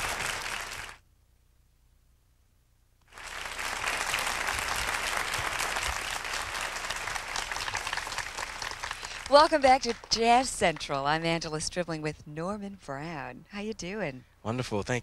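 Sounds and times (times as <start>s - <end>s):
audience applauding and cheering: 0.0s - 1.0s, 3.1s - 11.0s.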